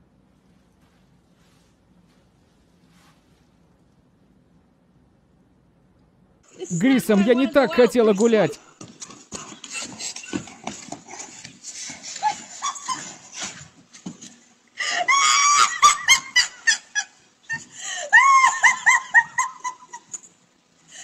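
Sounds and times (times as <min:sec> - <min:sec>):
woman shrieking laughter: 0:12.1 - 0:13.6, 0:14.8 - 0:20.3.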